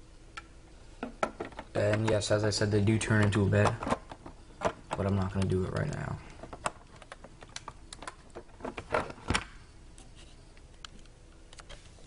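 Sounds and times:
plastic pieces clicking: 3.2s - 9.5s.

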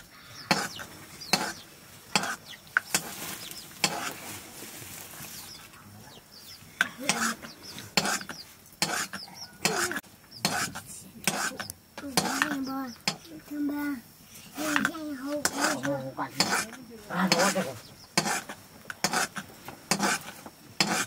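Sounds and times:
metal spoon scraping metal pot: 15.4s - 17.6s, 18.2s - 20.2s.

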